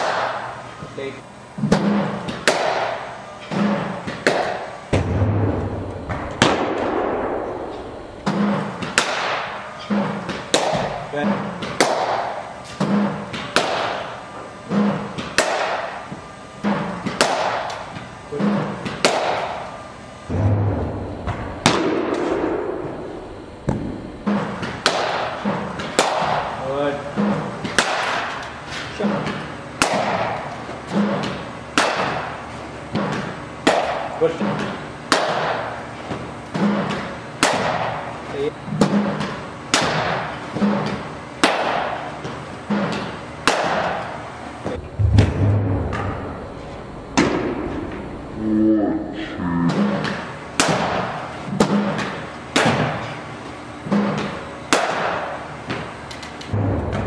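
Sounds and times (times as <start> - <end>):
cricket bat striking ball: 1.8 - 3.0, 8.3 - 9.6, 24.8 - 26.5, 54.0 - 55.4.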